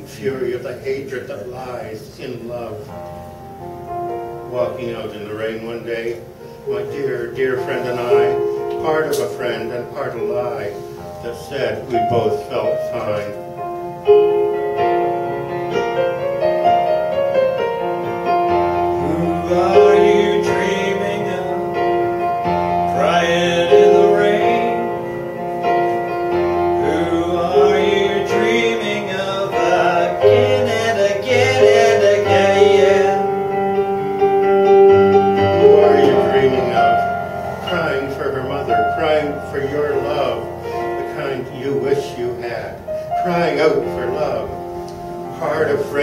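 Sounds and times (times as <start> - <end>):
slow piano melody: 0.0 - 46.0
man singing: 18.9 - 22.0, 22.9 - 25.0, 26.8 - 33.4, 35.6 - 37.0.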